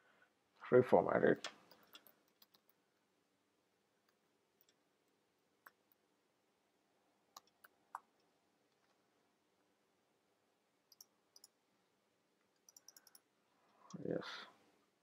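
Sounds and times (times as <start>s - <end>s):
computer keyboard clicks: 1.5s - 2.7s, 12.6s - 13.2s.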